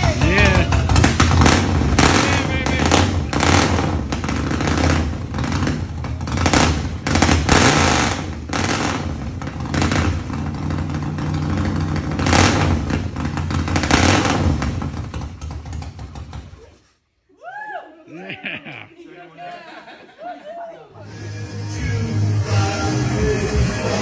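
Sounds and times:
motorcycle engine idling and revving: 0.0s - 16.6s.

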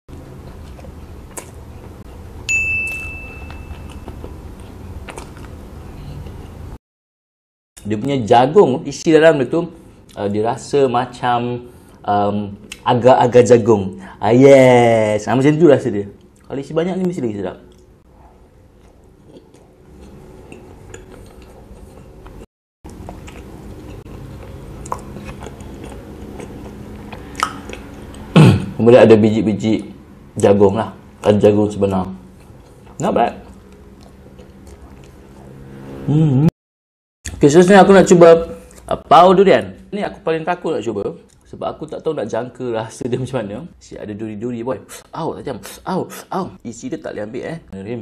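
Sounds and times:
chewing soft bun: 0.1s - 2.3s, 3.8s - 6.6s, 17.7s - 28.3s, 32.3s - 35.6s
high ding: 2.5s - 4.2s
mouth clicks: 27.4s - 28.3s.

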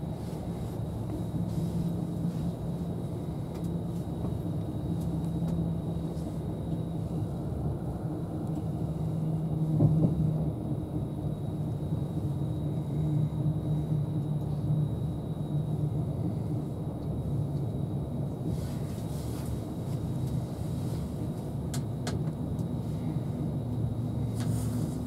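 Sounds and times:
train running rumble: 0.0s - 25.0s
brief thump: 9.8s - 10.2s.

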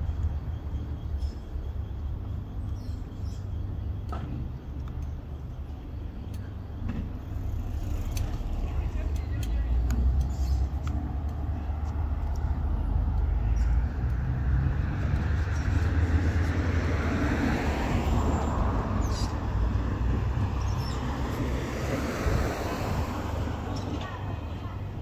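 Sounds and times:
vehicle engines rumbling: 0.0s - 25.0s
vehicle passing with tyre noise: 6.5s - 25.0s.

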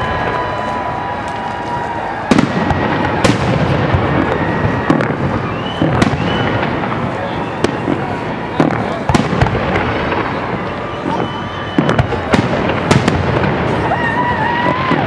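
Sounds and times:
continuous fireworks din: 0.0s - 15.0s
fireworks shells bursting: 0.0s - 15.0s
high whistles: 4.4s - 8.2s, 10.7s - 12.3s.

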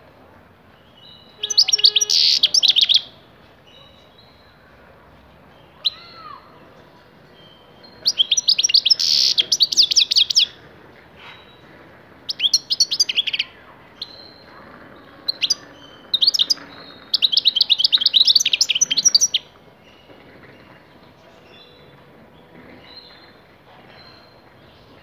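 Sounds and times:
goldfinch twittering and trilling: 15.3s - 19.5s.

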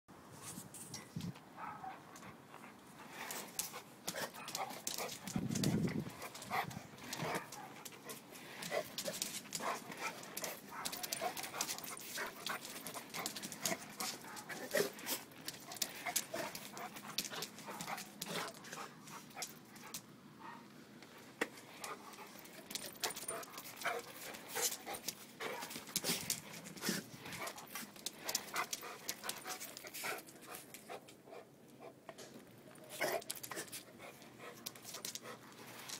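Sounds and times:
skate clicking and scraping on concrete: 3.1s - 20.0s, 21.4s - 30.8s.

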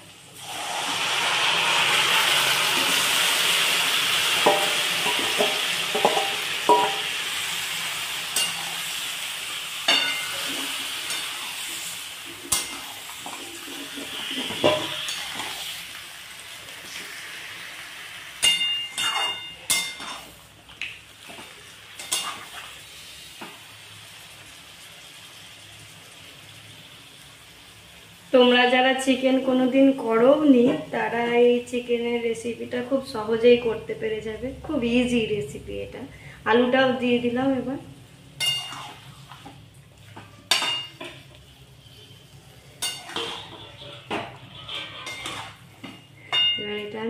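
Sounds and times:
chicken sizzling in hot oil: 0.0s - 31.5s, 37.4s - 46.4s
spatula scraping and clinking pan: 8.4s - 8.8s, 9.9s - 11.6s, 12.4s - 15.6s, 18.4s - 20.4s, 22.0s - 22.6s, 38.4s - 39.5s, 42.8s - 46.6s.

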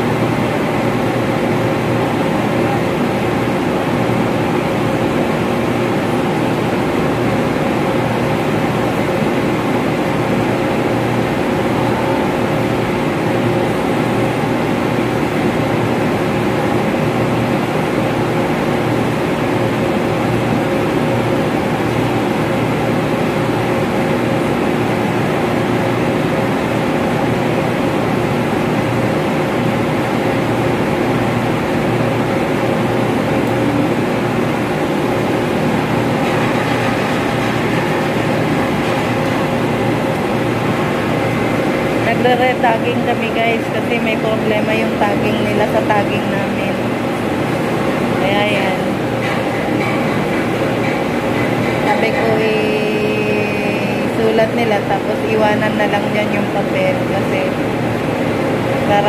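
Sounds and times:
ventilation machinery drone: 0.0s - 59.0s.

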